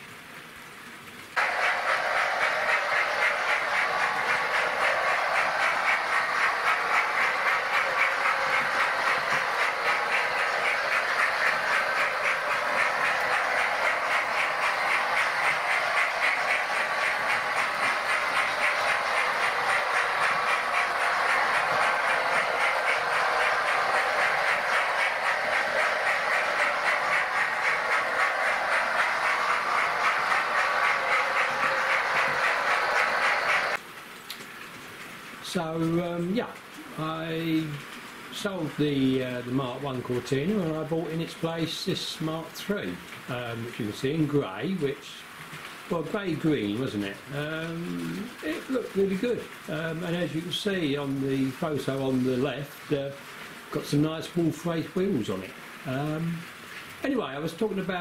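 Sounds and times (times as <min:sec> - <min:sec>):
model trains whirring on track: 0:00.0 - 0:58.0
fast fine clicking: 0:01.4 - 0:34.5.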